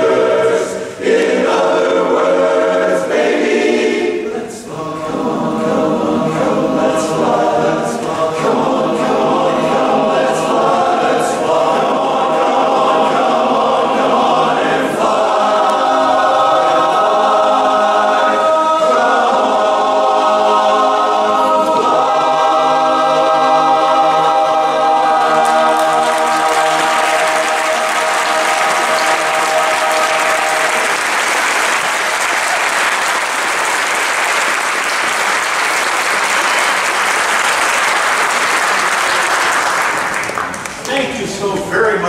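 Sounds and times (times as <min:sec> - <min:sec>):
male a cappella chorus singing: 0:00.0 - 0:31.9
audience applause: 0:25.2 - 0:41.2.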